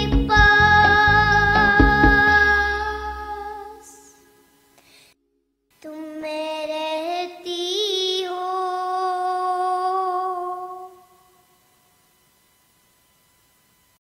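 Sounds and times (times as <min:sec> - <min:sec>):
girl singing: 0:00.0 - 0:04.3, 0:05.8 - 0:11.3
faint hiss: 0:02.3 - 0:05.2.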